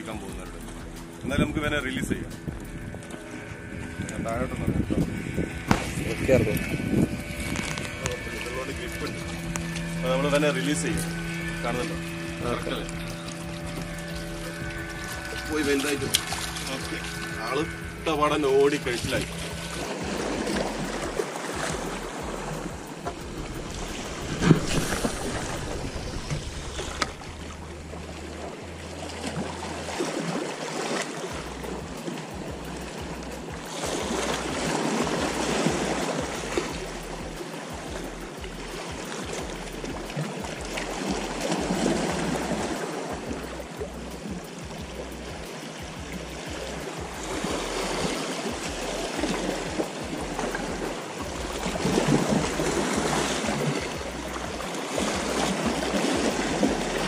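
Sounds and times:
waves washing against rocks: 0:00.0 - 0:57.0
sharp knock: 0:05.7 - 0:06.0.

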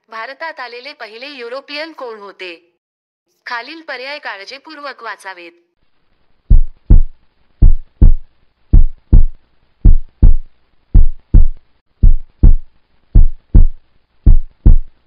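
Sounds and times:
heartbeat thumps: 0:06.5 - 0:15.0.

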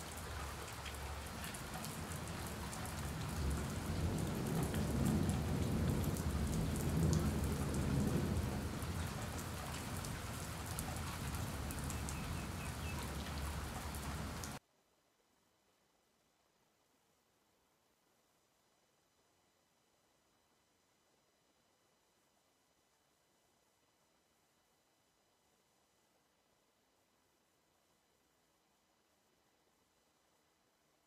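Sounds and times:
rain pattering on concrete roof: 0:00.0 - 0:14.6.

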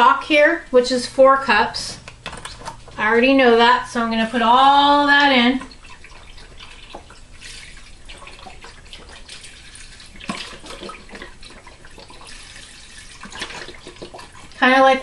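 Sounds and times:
liquid pouring into a pot: 0:05.6 - 0:14.6.

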